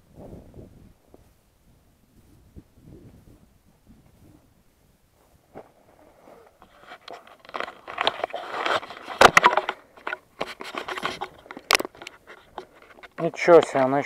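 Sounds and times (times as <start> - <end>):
camera handling rustling: 6.4 - 13.9.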